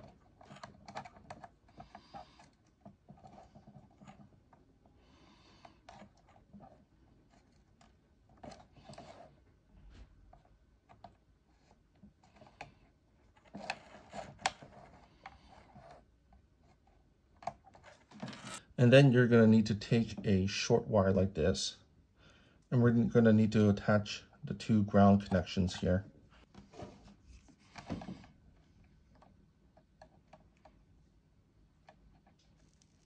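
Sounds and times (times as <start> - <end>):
clicks and scratching of handling wires: 0.0 - 5.0, 5.6 - 18.7, 31.7 - 33.0.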